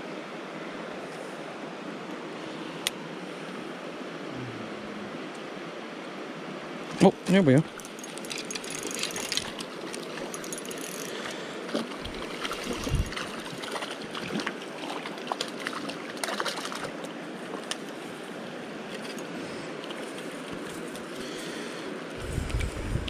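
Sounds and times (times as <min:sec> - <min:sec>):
rocky creek rushing: 0:00.0 - 0:22.6
fishing reel clicks: 0:07.8 - 0:11.2.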